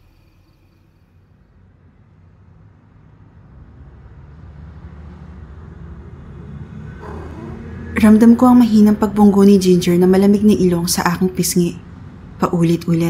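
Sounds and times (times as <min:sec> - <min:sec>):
faint cricket chirping: 0:00.0 - 0:01.3.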